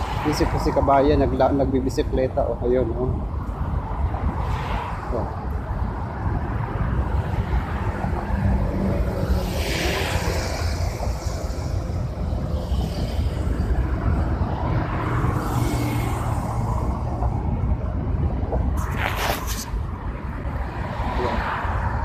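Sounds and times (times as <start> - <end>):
cars passing at speed: 0.0 - 22.0
low traffic rumble: 0.0 - 22.0.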